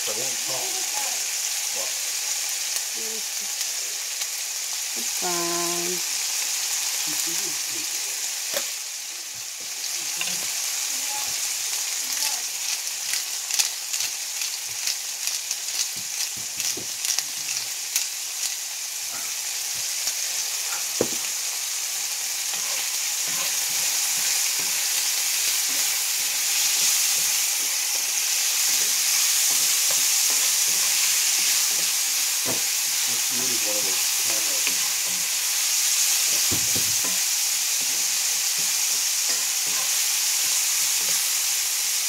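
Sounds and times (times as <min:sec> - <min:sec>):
meat sizzling in a skillet: 0:00.0 - 0:42.0
knock: 0:21.0 - 0:21.2.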